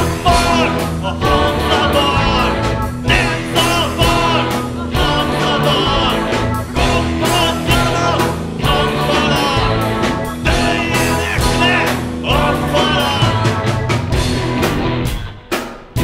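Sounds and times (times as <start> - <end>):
women singing backing vocals: 0.0 - 13.6
man singing lead: 0.0 - 14.0
live rock band playing: 0.0 - 16.0.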